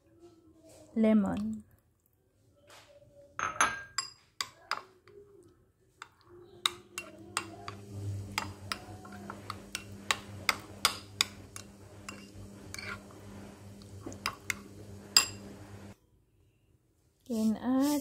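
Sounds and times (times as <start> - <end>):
spoon clinking against bowl: 3.4 - 4.9, 6.0 - 13.1, 14.1 - 15.6
steady low hum: 7.5 - 16.0.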